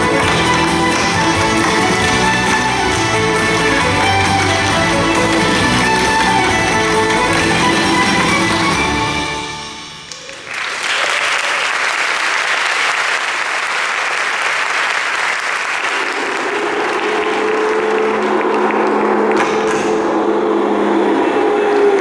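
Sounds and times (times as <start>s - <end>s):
audience applauding: 0.0s - 9.2s, 10.0s - 20.0s
music: 0.0s - 10.2s.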